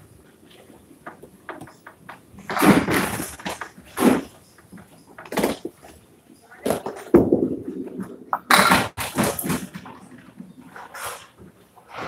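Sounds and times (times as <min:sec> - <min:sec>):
bowling balls crashing into pins: 0:01.7 - 0:04.4, 0:06.6 - 0:11.0.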